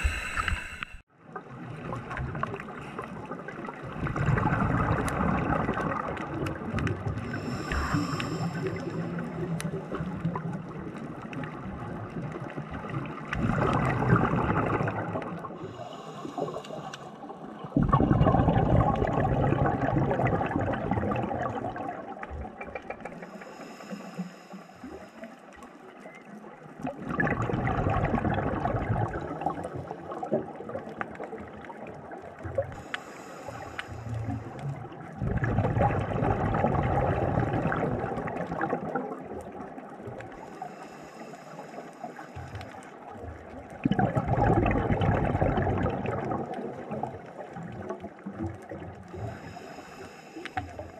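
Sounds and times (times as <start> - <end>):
regulator inhale hiss: 0.0 - 1.1, 7.3 - 9.1, 15.6 - 17.3, 23.2 - 25.4, 32.8 - 34.5, 40.4 - 42.8, 49.1 - 50.9
exhaled bubbles rushing underwater: 0.0 - 24.2, 24.8 - 41.0, 41.7 - 50.9.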